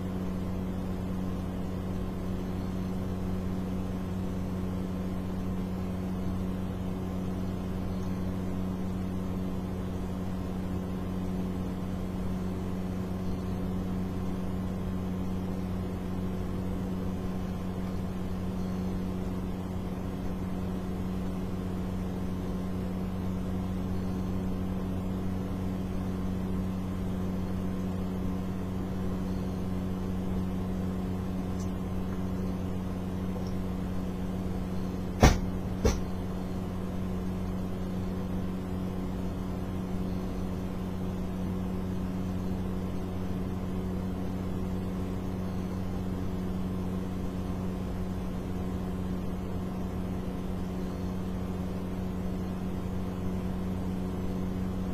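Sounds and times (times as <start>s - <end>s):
steady machine hum: 0.0s - 54.9s
sharp knocks: 35.2s - 36.1s.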